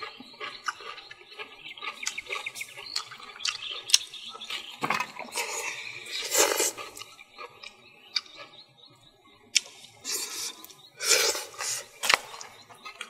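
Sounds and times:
mouth smacking clicks: 0.1s - 4.1s.

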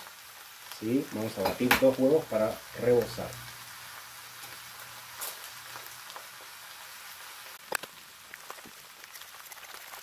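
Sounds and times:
frying sizzle on a griddle: 0.0s - 10.0s
eggshell cracking: 7.6s - 10.0s.

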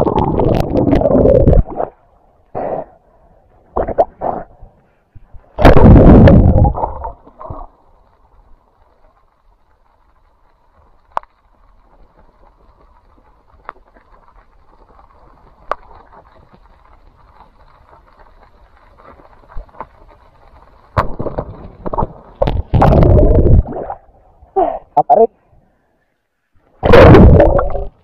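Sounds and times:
rushing water and air: 0.0s - 8.0s, 21.0s - 25.8s.

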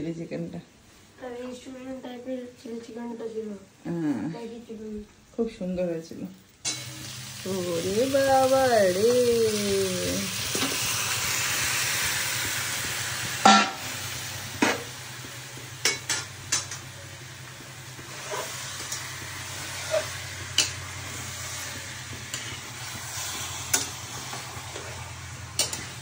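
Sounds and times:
chicken sizzling in a pan: 6.6s - 26.0s
spatula knocking and scraping pan: 13.4s - 15.0s, 15.6s - 16.9s, 19.8s - 26.0s.

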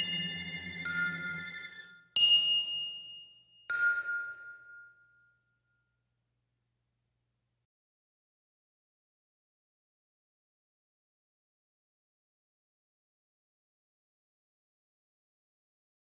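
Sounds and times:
background music: 0.0s - 4.6s
struck chime notes: 0.0s - 5.0s.

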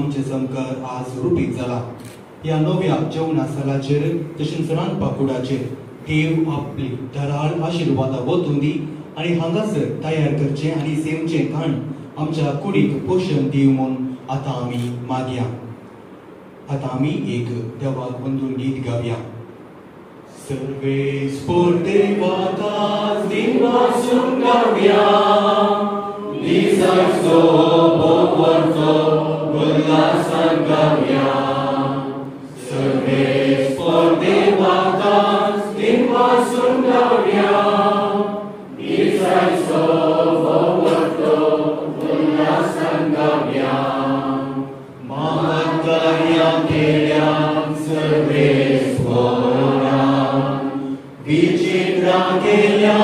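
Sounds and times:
congregation singing a hymn: 20.3s - 53.0s.

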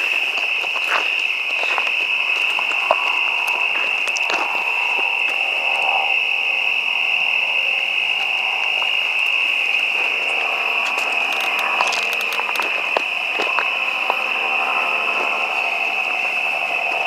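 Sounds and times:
footsteps on dirt path: 0.0s - 5.8s, 8.0s - 17.0s
crickets trilling: 0.0s - 17.0s.

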